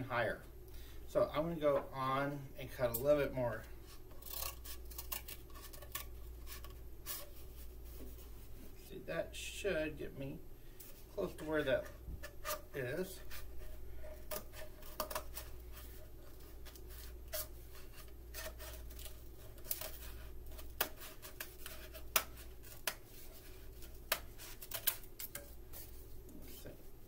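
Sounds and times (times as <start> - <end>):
scissors snipping cardboard tube: 18.3 - 23.0.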